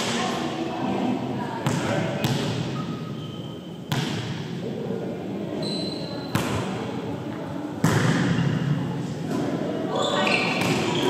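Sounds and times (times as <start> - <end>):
volleyball hit echoing in gym: 0.0 - 0.4, 1.6 - 4.8, 6.2 - 7.1, 7.8 - 9.8, 10.4 - 11.0.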